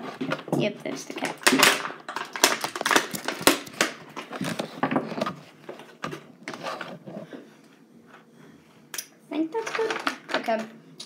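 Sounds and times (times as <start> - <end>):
plastic packaging crinkling: 0.1 - 7.2.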